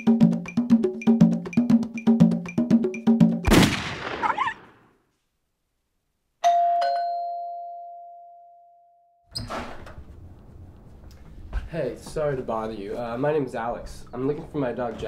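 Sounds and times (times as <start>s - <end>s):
rifle shot: 3.5s - 4.7s
two-note doorbell ringing: 6.4s - 9.2s.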